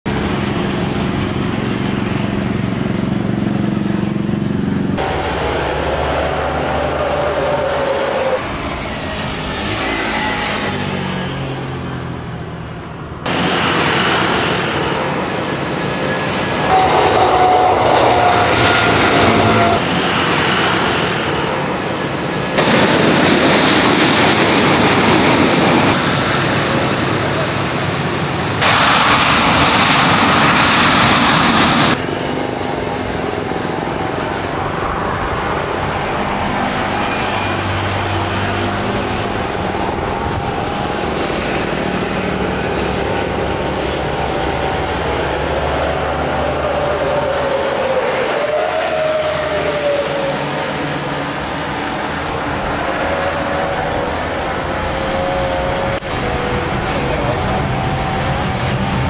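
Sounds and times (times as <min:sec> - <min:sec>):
jet airliner takeoff roll: 0:00.1 - 0:59.0
jet engine whine: 0:00.1 - 0:59.0
jet airliner climbing out: 0:22.6 - 0:32.0.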